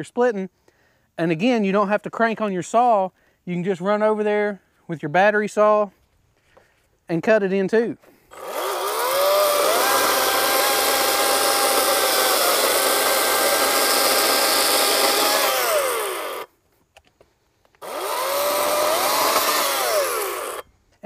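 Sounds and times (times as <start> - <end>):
chainsaw cutting log: 8.3 - 16.5, 17.8 - 20.7.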